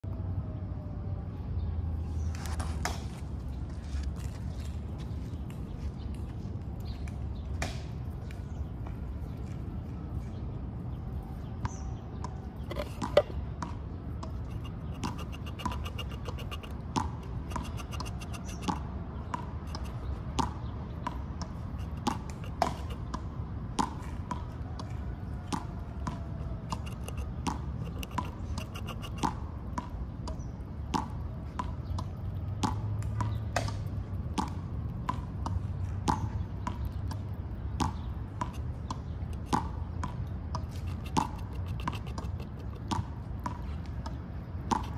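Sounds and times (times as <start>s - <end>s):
sharp ringing clicks: 14.4s - 18.8s, 26.4s - 29.2s, 40.9s - 42.9s.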